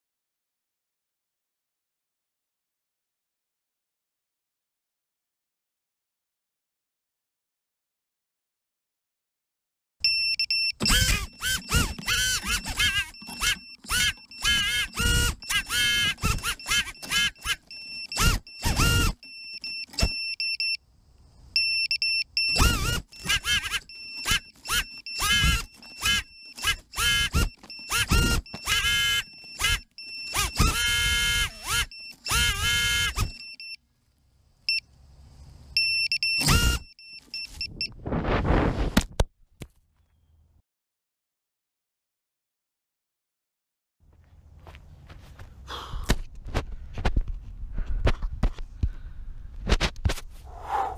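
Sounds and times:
thin high-pitched beeping: 10.0s - 20.8s, 21.6s - 33.8s, 35.8s - 37.9s
drone motors spinning up: 10.1s - 20.5s, 22.4s - 33.8s, 35.8s - 37.8s.

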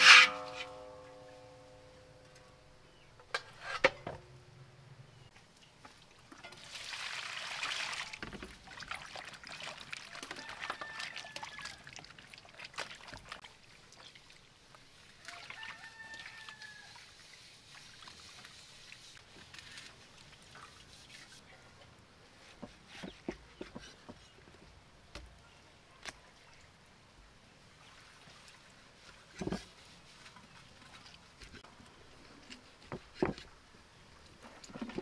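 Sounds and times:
water sloshing and splashing: 5.8s - 21.4s, 27.6s - 35.0s.

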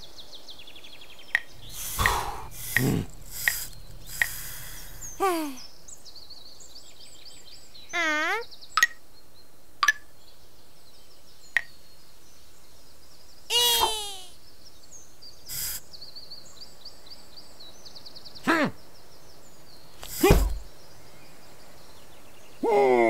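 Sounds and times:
short clicks: 1.4s - 5.4s, 15.5s - 15.8s, 20.0s - 20.6s
high chirping: 1.4s - 5.9s, 15.5s - 15.9s
brief swish: 20.0s - 20.7s.

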